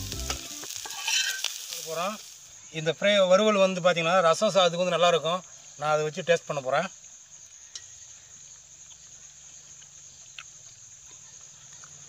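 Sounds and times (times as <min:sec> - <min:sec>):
high-pitched insect drone: 0:00.0 - 0:03.5.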